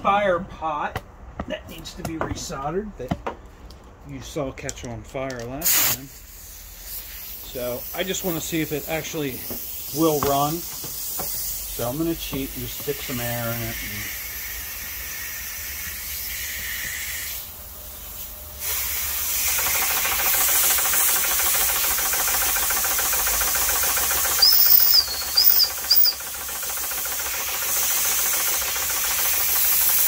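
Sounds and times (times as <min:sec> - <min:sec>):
compressed air hissing: 0:05.6 - 0:30.0
toy engine whistle toots: 0:18.7 - 0:30.0.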